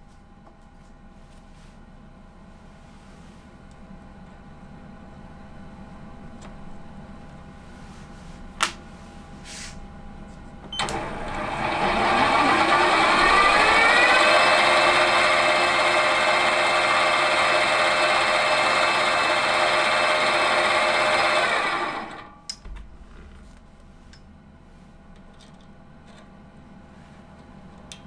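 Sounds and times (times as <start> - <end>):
lathe motor whining: 10.8 - 22.3.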